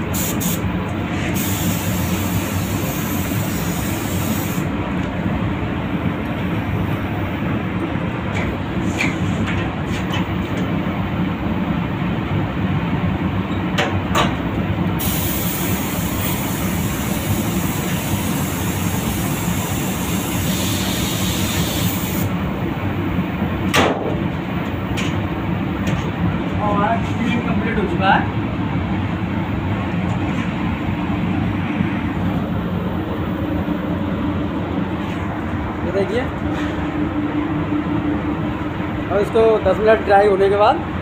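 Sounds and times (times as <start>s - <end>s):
spray gun hissing: 0.0s - 0.6s, 1.3s - 4.7s, 15.0s - 22.3s
steady low rumble: 22.3s - 40.2s.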